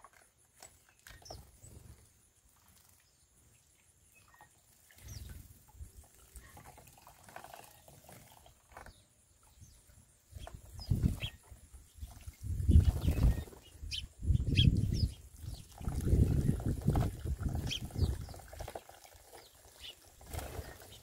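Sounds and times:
birds splashing and fluttering wings: 0.0 - 21.0
high bird chirps: 10.4 - 16.7.

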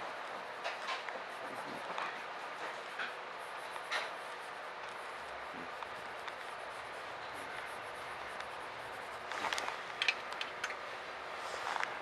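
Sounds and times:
sharp clicks and rattles: 9.5 - 10.9.

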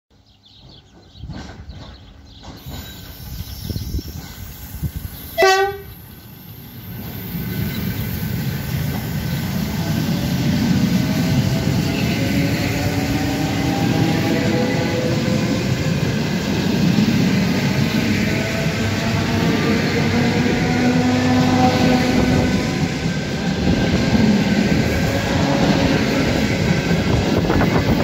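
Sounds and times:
train cars rumbling past: 0.1 - 28.0
train horn blast: 5.4 - 6.0, 20.3 - 22.9.

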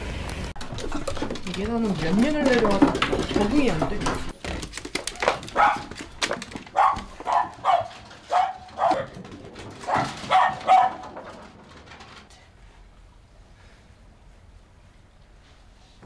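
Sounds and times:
small dogs barking: 5.2 - 6.0, 6.6 - 9.2, 9.8 - 11.4.

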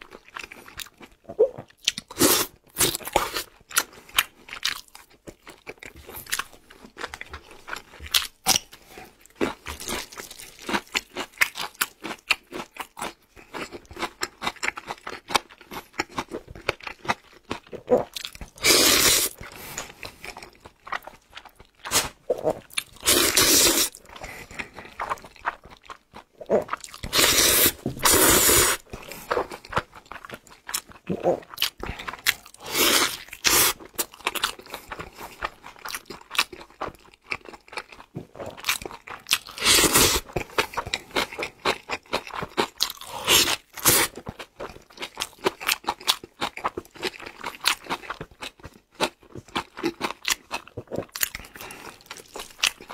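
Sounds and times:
wet chewing and smacking: 0.0 - 52.9
slurping noodles: 17.9 - 19.8, 21.9 - 25.0, 26.4 - 29.2, 32.6 - 33.8, 39.5 - 40.3.

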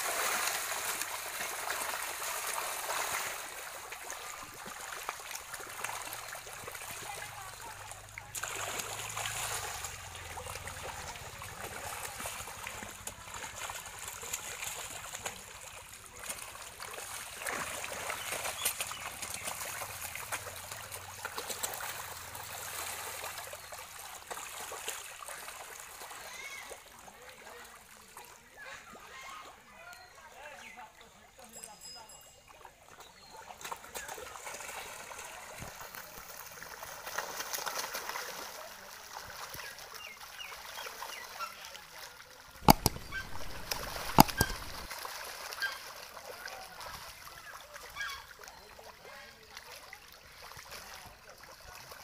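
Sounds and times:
catfish splashing water at surface: 0.0 - 26.7, 33.6 - 47.3.

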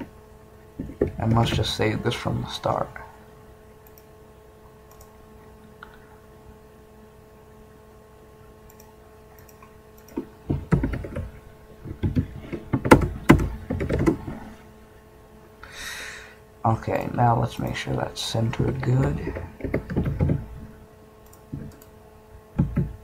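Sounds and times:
faint steady hum: 0.0 - 23.0
faint mouse clicks: 3.8 - 4.1, 4.9 - 5.1, 8.7 - 10.3
typing on keyboard: 8.7 - 11.3, 12.0 - 14.2, 18.6 - 20.5.

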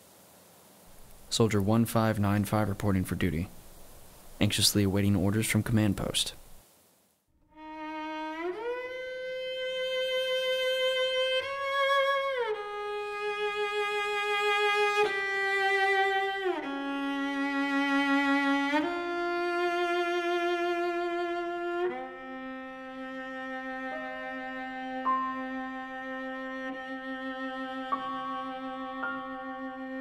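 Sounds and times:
slow violin melody: 7.4 - 30.0.

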